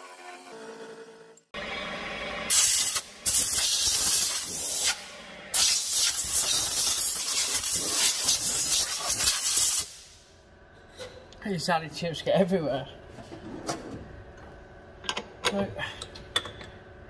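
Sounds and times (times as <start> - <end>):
compressed air blow gun hissing: 2.5 - 5.0, 5.6 - 10.2.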